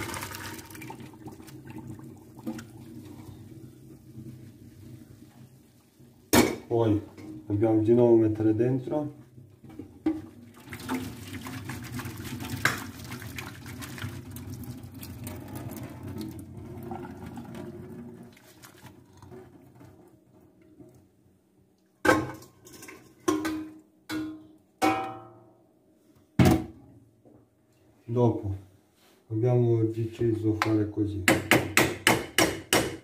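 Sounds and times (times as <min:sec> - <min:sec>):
metal pots clanking: 0:22.1 - 0:25.3.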